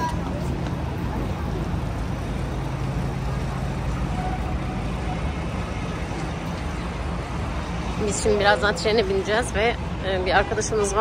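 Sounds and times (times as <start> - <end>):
engines rumbling: 0.0 - 11.0
traffic hiss: 0.0 - 11.0.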